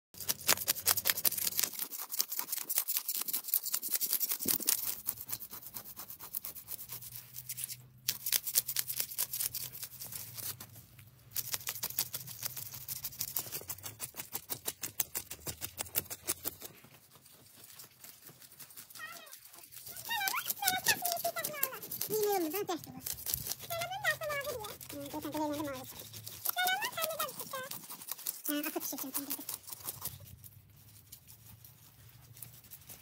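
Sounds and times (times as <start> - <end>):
knife scraping fish scales: 0.2 - 16.8, 23.0 - 31.5.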